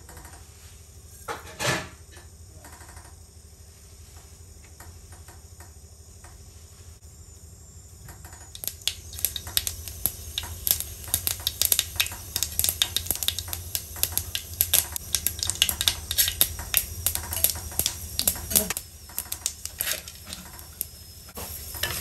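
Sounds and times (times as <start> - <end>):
mustard seeds popping in oil: 8.1 - 22.0.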